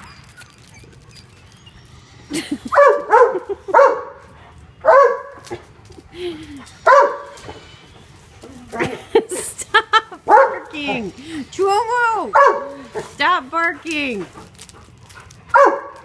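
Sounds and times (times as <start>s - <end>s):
dog whining: 0.0s - 4.1s
dog barking excitedly: 2.7s - 5.6s, 6.8s - 7.4s, 10.2s - 11.1s, 12.2s - 13.2s, 15.5s - 16.0s.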